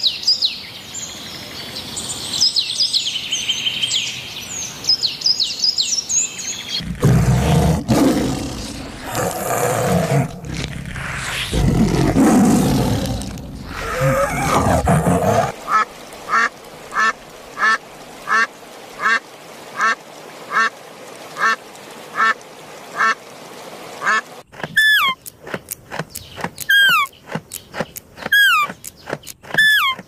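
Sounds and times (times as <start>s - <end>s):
sharp clicks: 24.5s - 30.0s
falling whistled calls: 26.6s - 27.2s, 29.5s - 30.0s.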